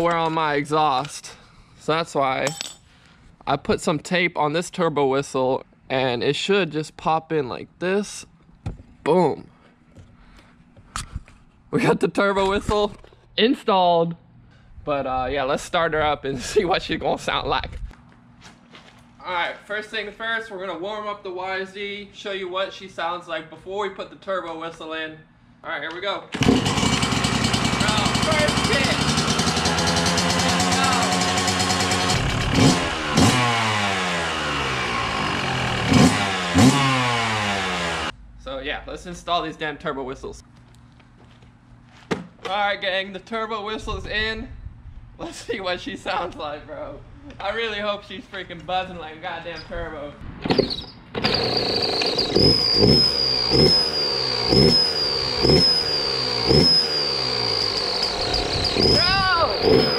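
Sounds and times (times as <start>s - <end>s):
engine revving: 26.4s - 38.2s, 51.2s - 59.9s
dirt bike engine idling: 26.4s - 38.6s, 51.3s - 59.9s
high exhaust whistle: 51.3s - 59.9s.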